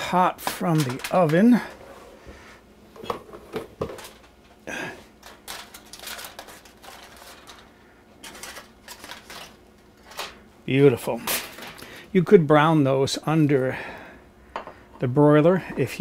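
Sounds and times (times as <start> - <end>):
aluminium foil crinkling: 5.2 - 10.4.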